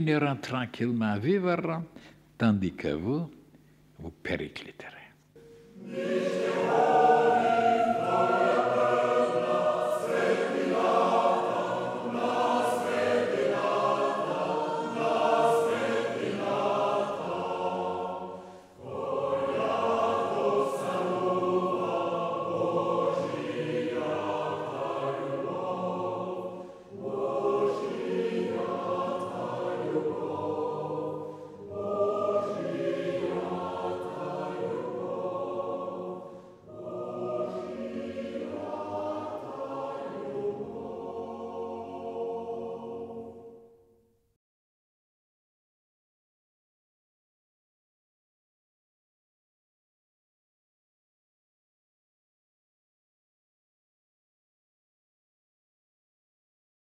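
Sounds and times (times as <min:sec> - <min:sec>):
choir singing held chords: 0:05.4 - 0:44.2.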